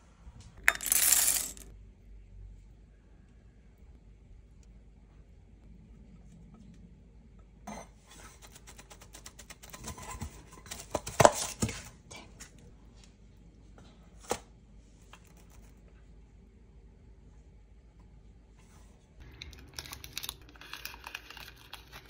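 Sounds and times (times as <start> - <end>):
metal tin rattling on stone: 0.6 - 1.7.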